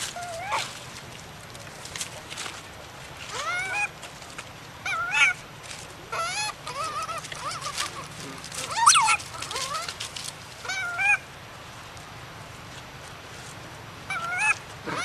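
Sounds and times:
infant monkey crying: 0.1 - 0.7, 3.3 - 3.9, 4.8 - 5.4, 6.1 - 10.0, 10.6 - 11.3, 14.1 - 15.0.

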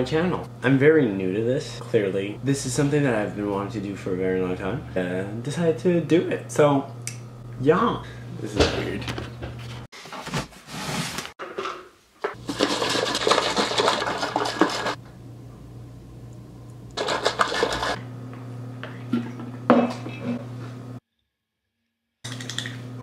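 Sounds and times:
low electrical hum: 0.0 - 9.9, 12.3 - 21.0
dishes rattling and clattering: 12.4 - 15.0.

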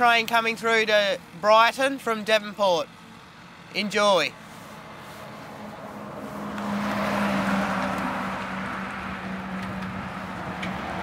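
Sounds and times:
truck driving past: 4.6 - 11.0.

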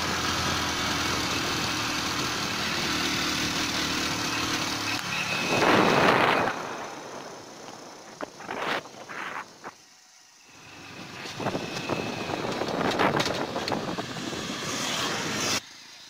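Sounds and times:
motorcycle road noise: 0.0 - 16.0
wind buffeting microphone: 11.0 - 15.5.

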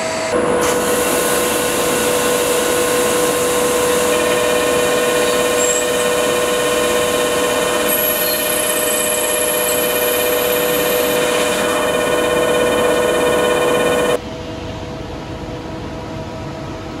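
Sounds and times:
lathe mechanical whine: 0.0 - 14.2
coolant spraying hiss: 0.6 - 6.6.

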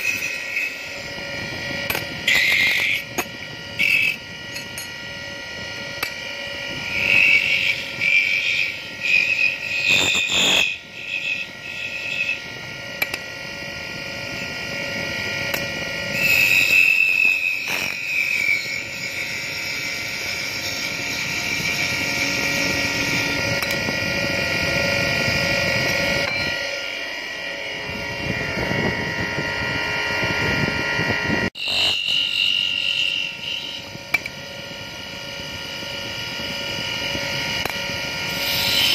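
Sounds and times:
wood lathe whining: 0.0 - 38.9
scraper squealing on wood: 2.2 - 3.2, 3.8 - 4.3, 6.9 - 12.5, 16.1 - 23.6, 31.6 - 33.9, 38.3 - 38.9.

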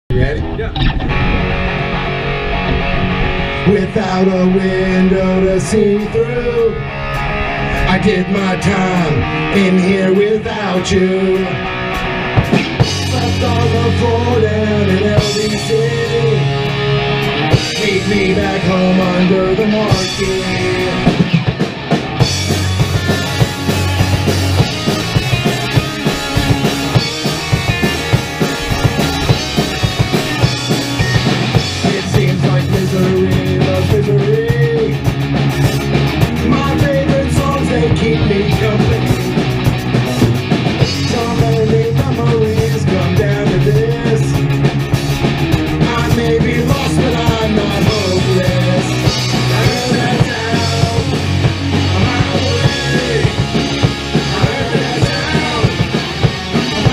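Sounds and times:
punk rock band playing live: 0.1 - 56.9
wavering melodic line: 22.3 - 31.9.

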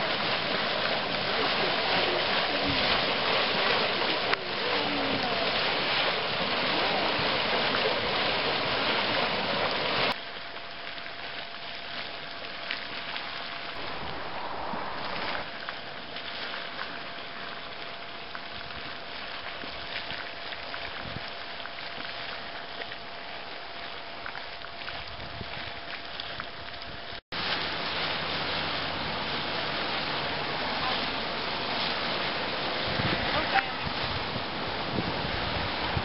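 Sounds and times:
mud pot bubbling and hissing: 0.0 - 36.0.

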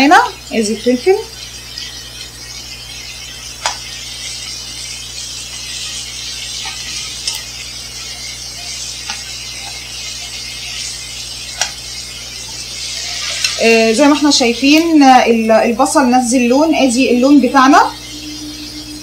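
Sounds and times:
onions sizzling in a frying pan: 0.0 - 19.0
spoon tapping a pan: 3.6 - 3.9, 6.5 - 7.5, 8.6 - 10.9, 11.6 - 11.9
wooden spoon stirring: 3.6 - 14.2.

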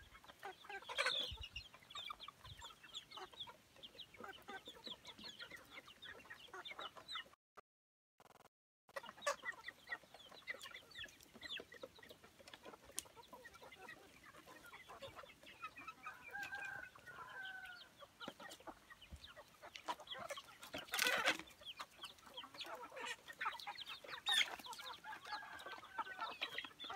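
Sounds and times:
chickens clucking and peeping: 0.0 - 7.4, 8.9 - 26.9
long drawn-out chicken call: 13.4 - 18.6, 22.4 - 26.9.

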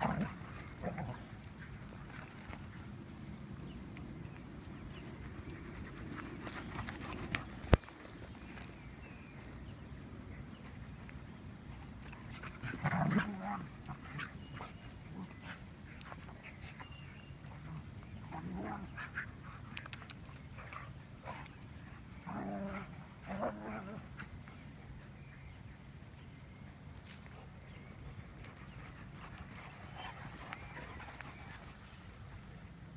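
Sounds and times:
dogs playing rough: 0.0 - 8.7, 10.4 - 25.0, 28.4 - 32.6.

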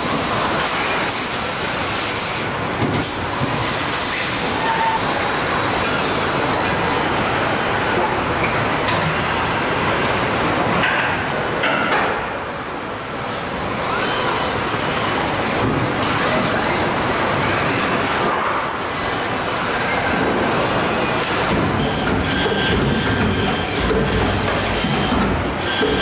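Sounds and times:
industrial robot machinery din: 19.6 - 26.0
mechanical clicks and clanks: 21.2 - 26.0.

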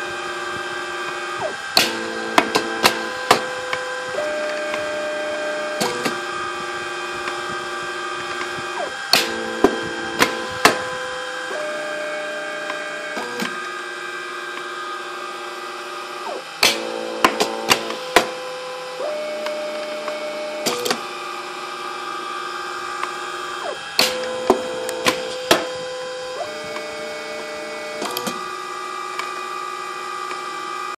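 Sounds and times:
stepper motors whining: 0.0 - 31.0
machine clicks and knocks: 1.4 - 4.9.

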